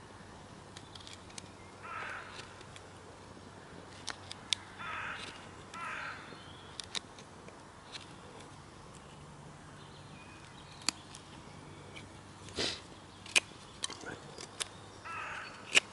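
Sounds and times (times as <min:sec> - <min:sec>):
crow cawing: 0:01.8 - 0:02.6, 0:04.7 - 0:06.4, 0:15.0 - 0:15.7.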